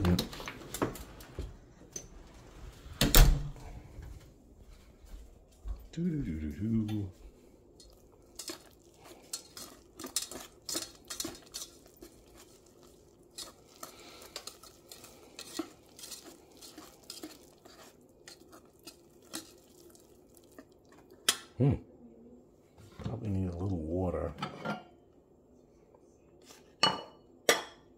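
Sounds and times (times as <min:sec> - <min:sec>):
whisk clinking and scraping bowl: 0:07.8 - 0:19.9.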